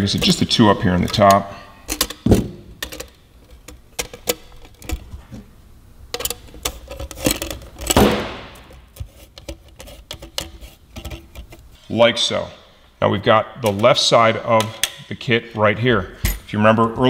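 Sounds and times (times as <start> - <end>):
metal hardware clinking: 0.0 - 5.4, 6.1 - 11.6
metal scrape: 6.2 - 12.0.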